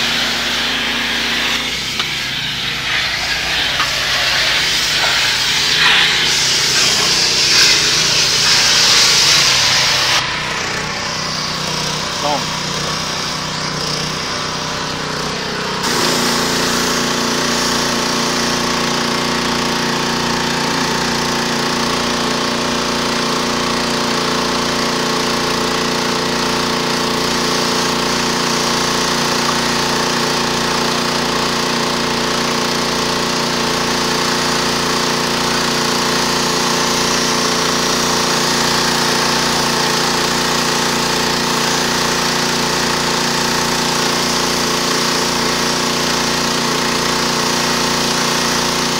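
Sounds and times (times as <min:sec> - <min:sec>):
water jet hissing: 0:00.0 - 0:12.4, 0:15.8 - 0:19.4, 0:34.2 - 0:46.4
pressure washer engine drone: 0:00.0 - 0:48.9.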